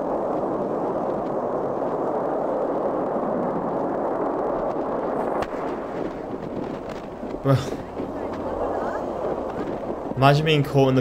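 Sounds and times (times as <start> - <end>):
rushing rumble of explosion debris: 0.0 - 11.0.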